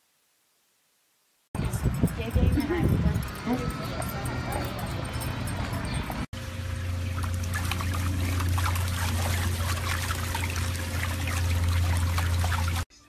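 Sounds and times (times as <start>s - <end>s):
steady low hum: 1.6s - 12.9s
pool water splashing: 4.9s - 12.9s.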